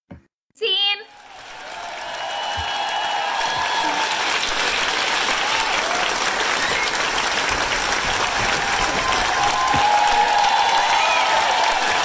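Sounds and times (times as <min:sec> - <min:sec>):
crowd applauding: 0:01.1 - 0:12.0.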